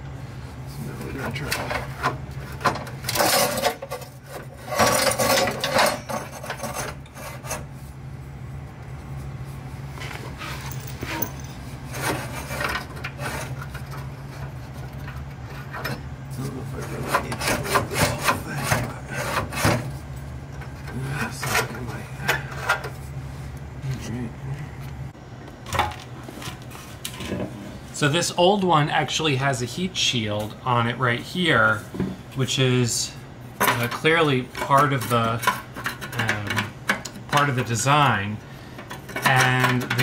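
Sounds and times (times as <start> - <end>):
metal scraping and knocking: 1.1 - 7.7, 10.0 - 23.1.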